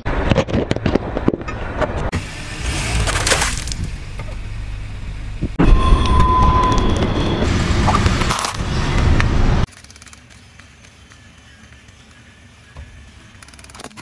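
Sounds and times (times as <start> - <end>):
engine crackle: 0.9 - 12.7
car engine running: 2.1 - 5.7.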